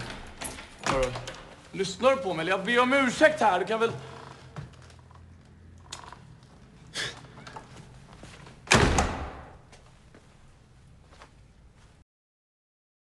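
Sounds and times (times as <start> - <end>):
door slamming shut: 0.0 - 1.5, 8.6 - 9.6.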